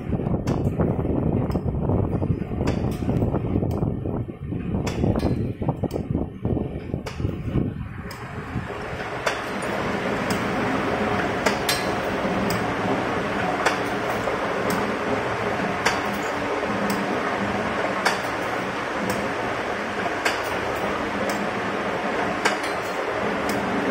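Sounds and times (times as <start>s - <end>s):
wire-forming machine running: 0.0s - 23.9s
sharp metal clack: 11.4s - 12.6s.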